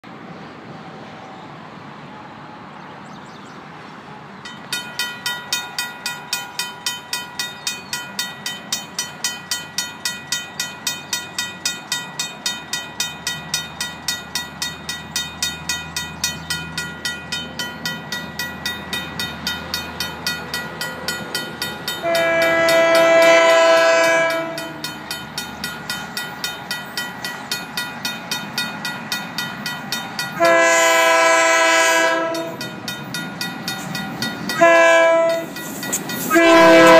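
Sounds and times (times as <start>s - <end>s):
crossing bell ringing: 4.4s - 36.9s
locomotive air horn blasts: 22.0s - 24.8s, 30.4s - 32.6s, 34.6s - 35.5s, 36.3s - 36.9s.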